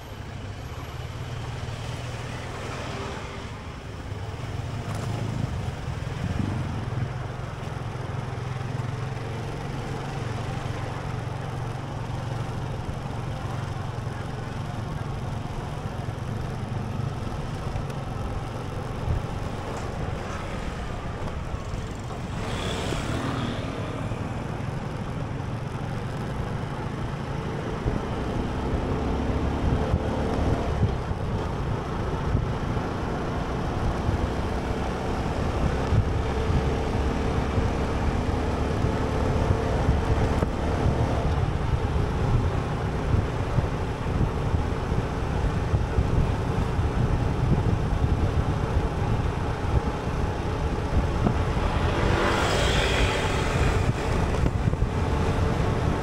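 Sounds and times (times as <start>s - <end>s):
road vehicle engine rumble: 0.0s - 56.0s
wind buffeting microphone: 39.4s - 56.0s.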